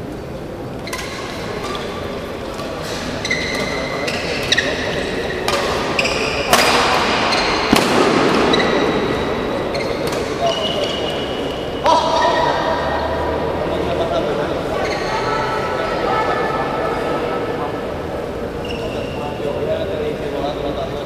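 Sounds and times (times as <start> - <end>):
court shoes squeaking: 0.0 - 17.0, 18.0 - 19.9
rackets striking shuttlecock: 0.9 - 12.4.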